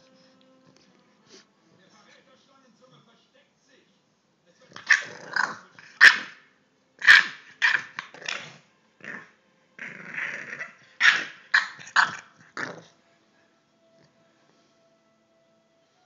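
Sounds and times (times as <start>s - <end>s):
puppy barking: 4.8s - 5.2s, 5.9s - 6.4s, 7.0s - 8.5s, 10.6s - 12.3s
puppy growling: 4.8s - 6.4s, 7.0s - 13.0s.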